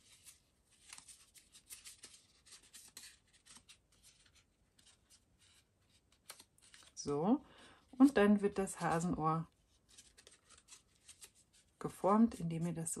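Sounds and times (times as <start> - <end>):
paper rustling and crackling: 0.0 - 7.0, 8.8 - 11.9.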